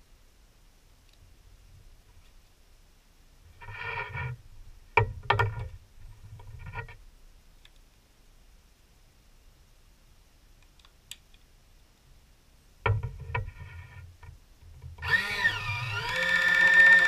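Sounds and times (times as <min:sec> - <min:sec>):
can opener motor whirring: 0:15.0 - 0:17.0.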